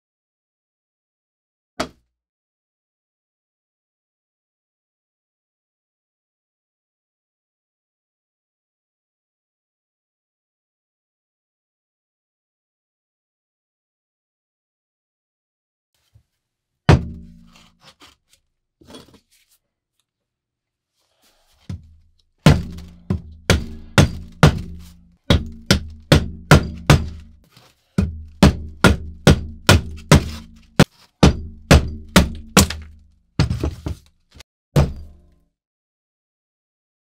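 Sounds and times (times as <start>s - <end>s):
hatchet chopping wood: 16.9s - 17.6s, 22.4s - 27.4s, 28.0s - 34.0s, 34.8s - 35.2s.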